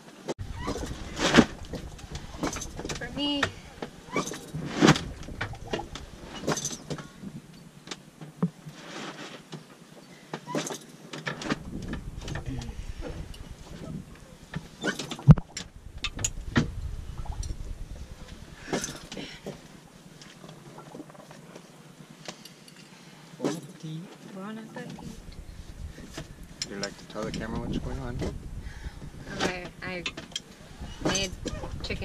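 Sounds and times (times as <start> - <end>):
knocks and clicks of people moving: 0.3 - 32.0
low rumble: 0.4 - 8.2, 11.4 - 20.9, 24.9 - 32.0
heavy thump: 11.4 - 19.7.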